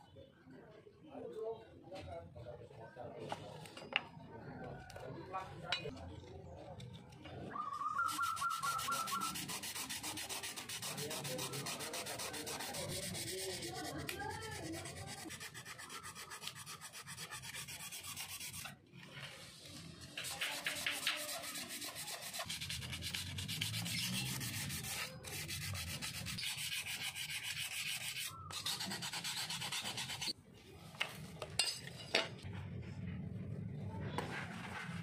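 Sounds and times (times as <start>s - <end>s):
sandpaper rasping on metal: 8.0s - 18.8s, 20.2s - 30.4s.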